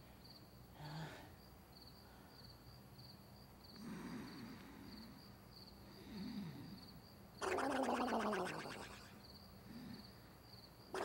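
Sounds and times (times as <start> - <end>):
faint cricket chirps: 0.0 - 11.0
soft sleepy breathing: 3.8 - 5.2, 5.8 - 7.0.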